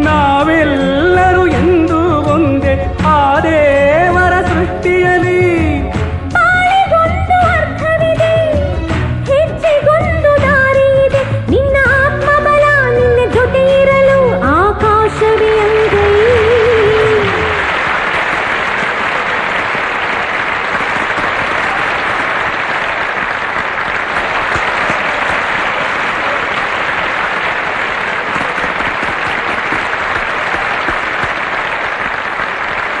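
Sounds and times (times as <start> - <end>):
backing music: 0.0 - 33.0
crowd applauding: 15.1 - 33.0.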